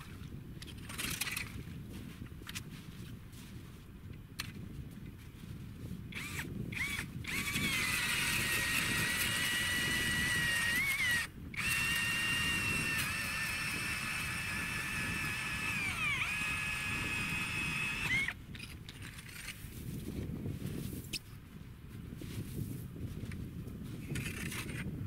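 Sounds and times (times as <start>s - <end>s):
ice auger motor whine: 6.2s - 18.4s.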